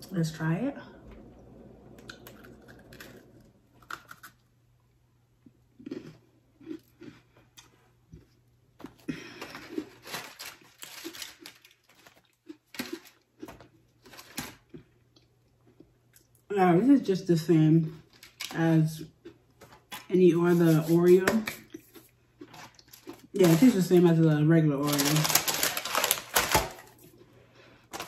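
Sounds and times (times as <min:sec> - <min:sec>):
person crunching a cookie: 0:02.0 - 0:04.6, 0:05.4 - 0:16.5, 0:18.0 - 0:24.2.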